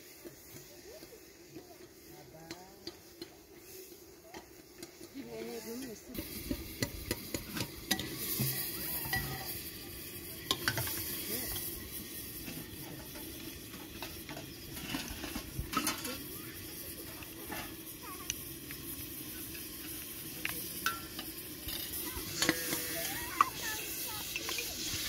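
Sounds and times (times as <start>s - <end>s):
steady hiss: 0.0s - 25.0s.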